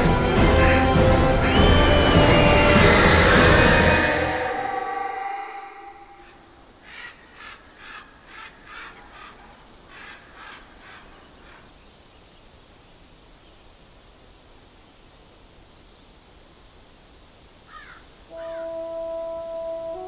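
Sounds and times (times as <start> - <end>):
bird harsh calls: 5.3 - 11.8, 17.7 - 18.8
faint steady hiss: 5.4 - 20.0.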